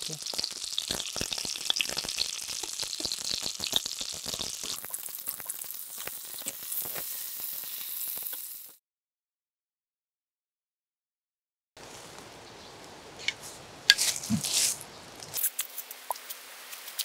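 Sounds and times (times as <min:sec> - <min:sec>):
fat spattering crackles: 0:00.0 - 0:08.8, 0:13.9 - 0:17.0
fish sizzling in a pan: 0:00.0 - 0:08.8.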